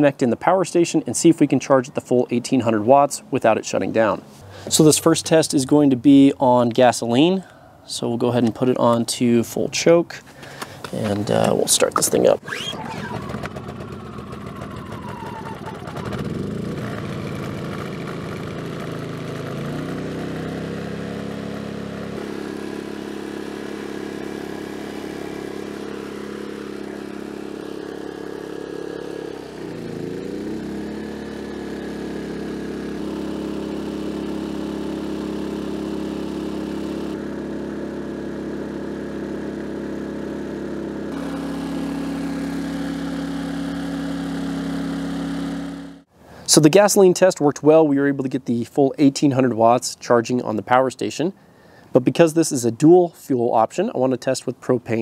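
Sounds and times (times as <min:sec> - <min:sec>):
generator engine drone: 0:10.2 - 0:46.5.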